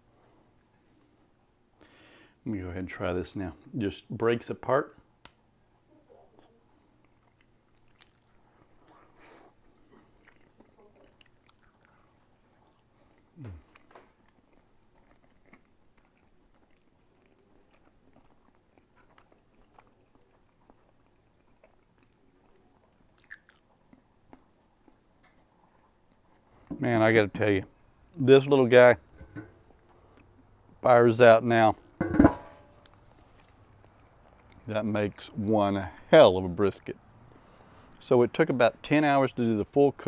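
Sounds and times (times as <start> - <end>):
person chewing food: 6.7 - 26.7, 29.2 - 30.8, 32.6 - 34.7.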